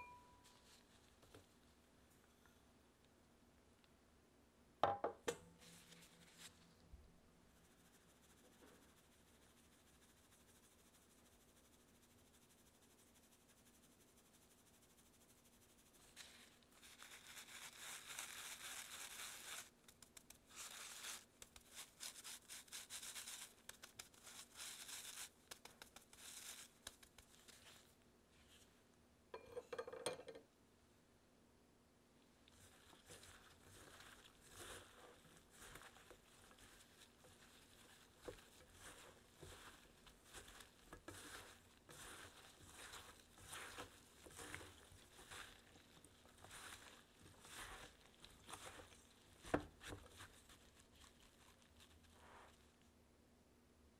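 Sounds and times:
sieve hissing rustle: 32.6 - 52.8.

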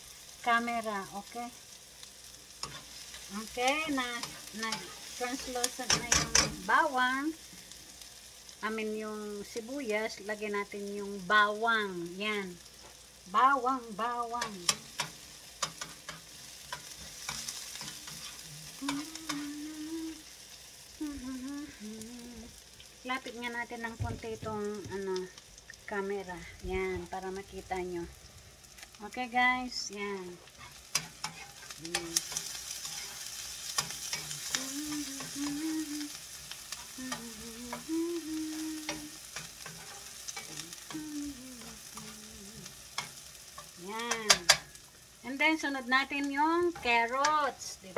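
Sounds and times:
onion and garlic sizzling in oil: 0.0 - 47.9
metal spoon scraping a pan: 2.6 - 6.7, 14.4 - 19.5, 30.5 - 35.6, 38.5 - 41.0, 41.6 - 44.8.

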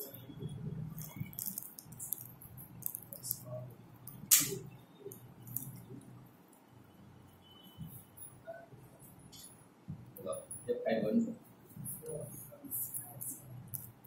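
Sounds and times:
sharp click: 4.1 - 4.6.

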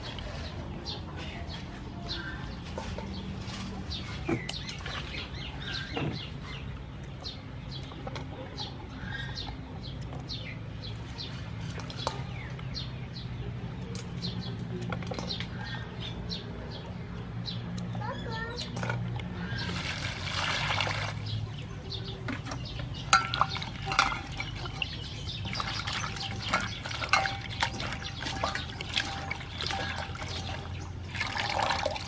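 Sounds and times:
small birds chirping: 0.0 - 32.0.

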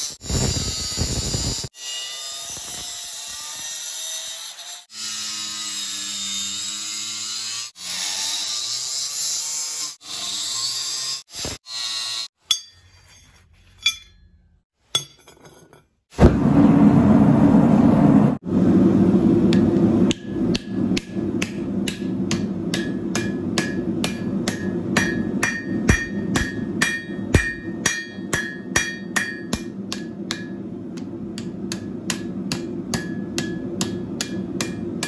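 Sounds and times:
angle grinder cutting steel: 0.0 - 14.2.

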